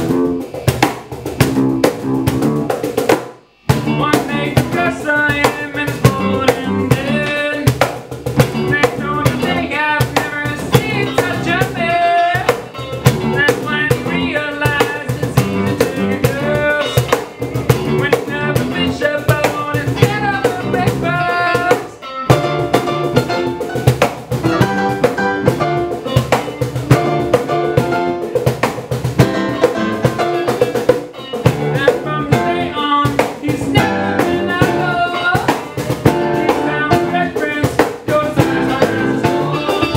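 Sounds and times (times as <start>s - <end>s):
steady drum beat: 0.0s - 39.9s
strummed acoustic guitars: 3.7s - 39.9s
melody line: 24.5s - 25.9s.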